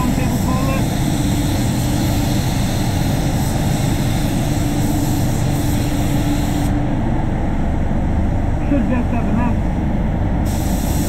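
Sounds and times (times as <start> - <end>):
spray gun hissing: 0.0 - 6.8, 10.4 - 11.0
spray booth airflow rumble: 0.0 - 11.0.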